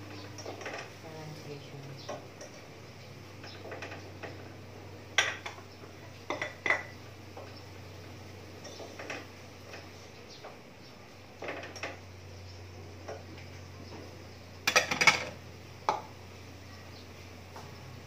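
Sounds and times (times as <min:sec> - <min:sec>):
knocks and clinks against pot: 0:05.2 - 0:05.6, 0:06.3 - 0:07.5, 0:14.6 - 0:16.1.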